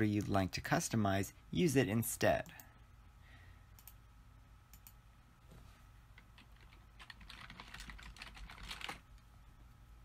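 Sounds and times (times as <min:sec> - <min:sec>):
faint mouse clicks: 0:03.7 - 0:04.0, 0:04.7 - 0:05.0
typing on computer keyboard: 0:06.2 - 0:09.0.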